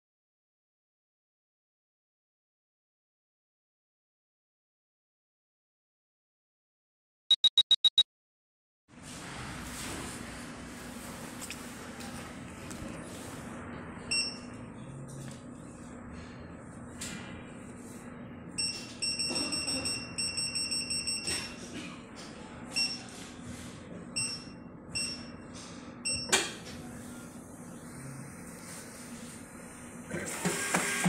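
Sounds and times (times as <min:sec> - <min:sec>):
control panel beeps: 0:07.3 - 0:08.0, 0:14.1 - 0:14.5, 0:18.6 - 0:21.3, 0:24.2 - 0:25.4, 0:26.0 - 0:26.4.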